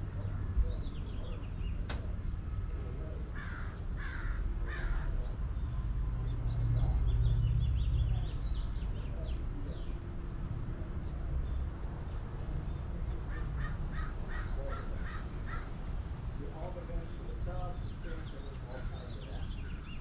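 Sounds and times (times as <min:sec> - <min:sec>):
small birds chirping: 0:00.0 - 0:20.0
crow cawing: 0:03.3 - 0:05.3, 0:13.3 - 0:15.9
low rumble: 0:04.5 - 0:09.2.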